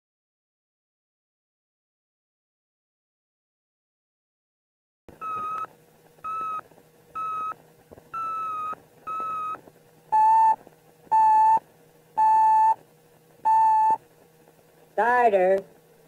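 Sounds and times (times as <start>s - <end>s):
faint steady hum: 5.1s - 16.0s
electronic beeps: 5.2s - 6.6s, 7.2s - 11.6s, 12.2s - 12.8s, 13.5s - 14.0s.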